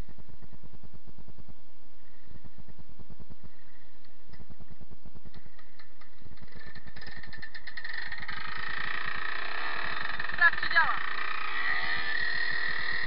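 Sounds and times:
two-stroke engine idling and revving: 0:05.2 - 0:13.0.

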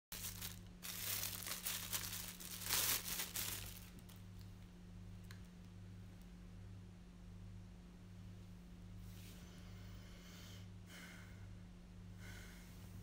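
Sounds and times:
rustling and crackling: 0:00.1 - 0:04.6
low steady hum: 0:00.1 - 0:13.0.

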